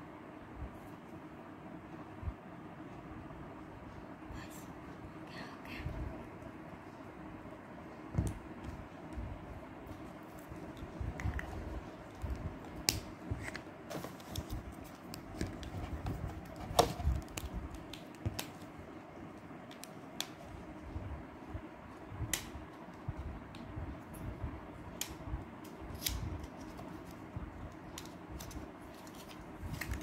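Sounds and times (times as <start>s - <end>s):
rustling handling noise: 8.4s - 18.8s, 26.0s - 30.0s.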